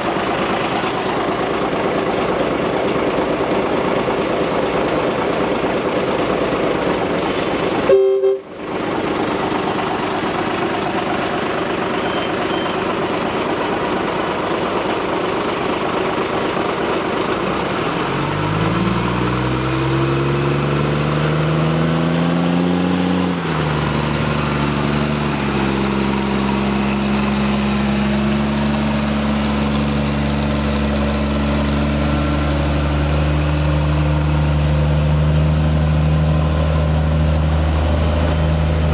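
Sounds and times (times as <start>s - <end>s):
train coaches rumbling over track: 0.0s - 19.7s, 35.2s - 38.9s
diesel locomotive engine: 0.0s - 38.9s.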